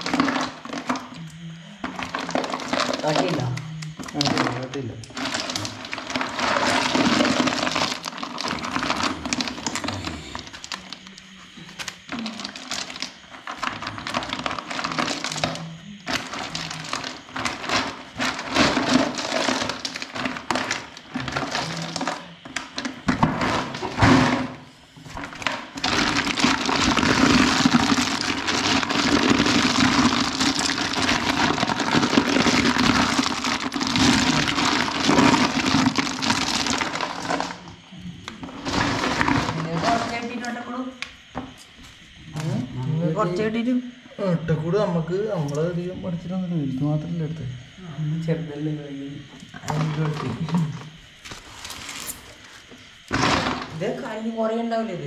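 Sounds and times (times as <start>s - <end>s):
snail shells clattering: 1.9s - 11.2s, 11.8s - 23.8s, 25.2s - 37.7s.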